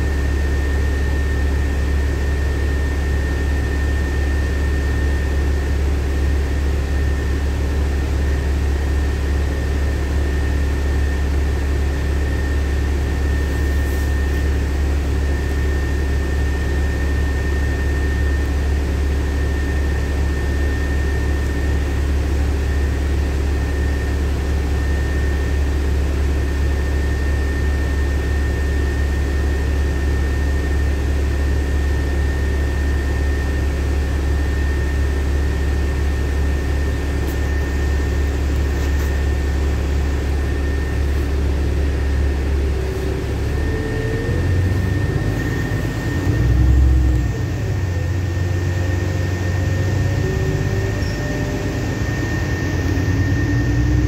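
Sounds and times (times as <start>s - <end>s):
bus engine drone: 0.0s - 54.0s
thin high whine: 50.2s - 54.0s.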